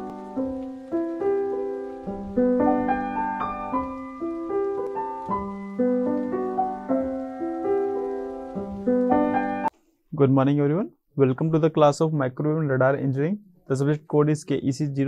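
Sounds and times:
instrumental intro music: 0:00.0 - 0:09.7.

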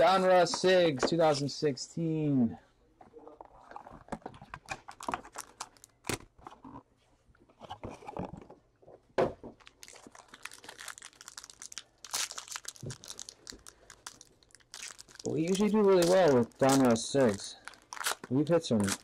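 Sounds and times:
plastic wrapper crinkling: 0:03.6 - 0:06.5, 0:09.6 - 0:19.0.

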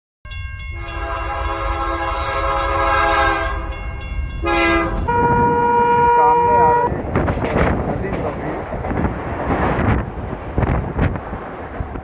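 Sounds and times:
train horn blasts: 0:00.8 - 0:06.9.

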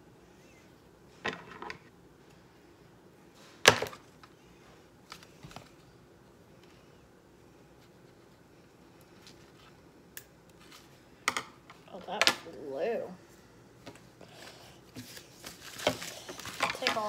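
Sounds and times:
toy packaging clicks and knocks: 0:15.7 - 0:17.0.

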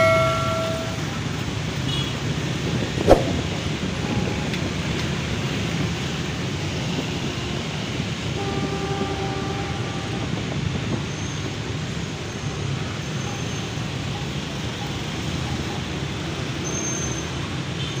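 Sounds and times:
train horn: 0:00.0 - 0:01.3, 0:08.2 - 0:10.7
distant train rumbling: 0:00.0 - 0:01.9.

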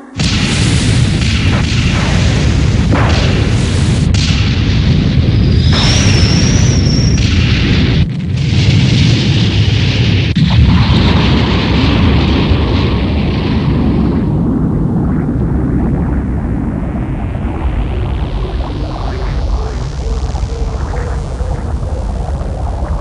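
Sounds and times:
wavering high whine: 0:00.0 - 0:01.1, 0:15.1 - 0:23.0
rumbling explosions: 0:00.0 - 0:23.0.

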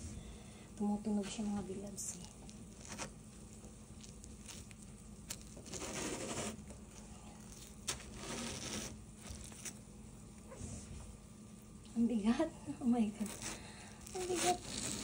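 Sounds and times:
watermelon scraping on metal: 0:05.6 - 0:06.7, 0:07.9 - 0:09.8, 0:13.1 - 0:15.0.

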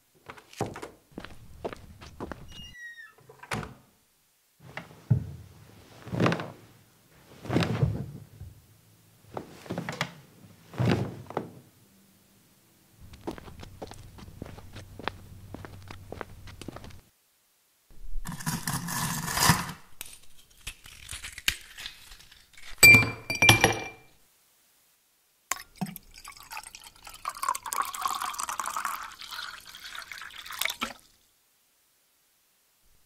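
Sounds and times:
glassware clinking: 0:22.8 - 0:24.1
liquid pouring and splashing: 0:25.5 - 0:31.2.

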